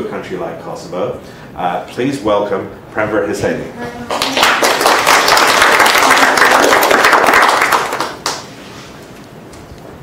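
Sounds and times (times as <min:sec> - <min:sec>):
audience applauding: 0:04.1 - 0:08.5.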